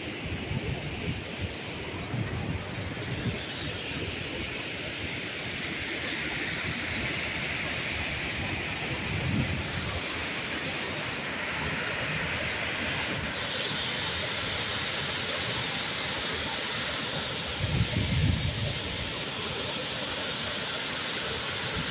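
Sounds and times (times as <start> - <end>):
wind buffeting microphone: 17.6 - 19.0.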